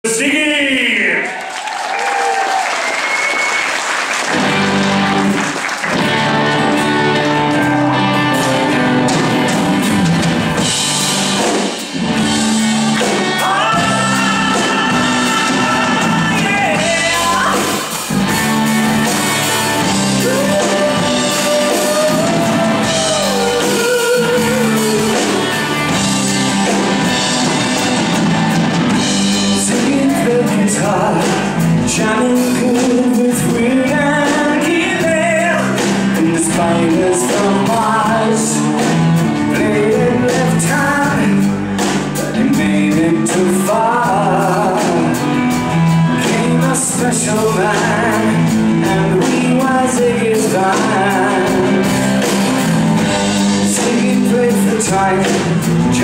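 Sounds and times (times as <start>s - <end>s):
audience applause: 1.1s - 8.5s
live rock band playing: 2.2s - 56.0s.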